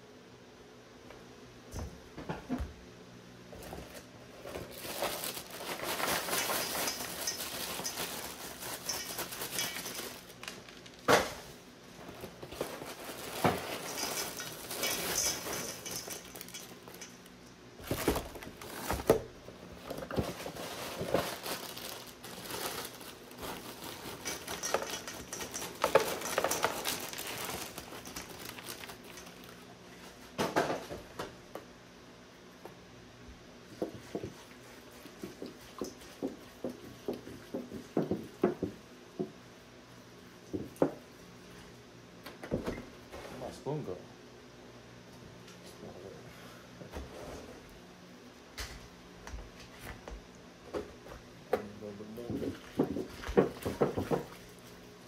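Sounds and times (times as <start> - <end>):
plastic bags crinkling: 4.4 - 11.1, 12.0 - 29.8
dry cereal pattering into metal bowl: 4.7 - 10.9, 12.4 - 17.3, 20.1 - 29.6.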